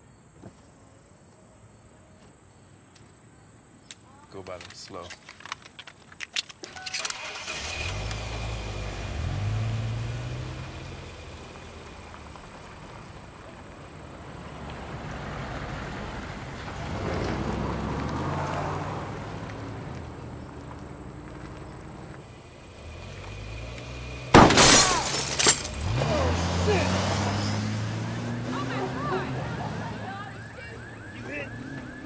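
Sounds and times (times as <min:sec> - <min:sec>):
car engines driving past: 0:07.2 - 0:32.0.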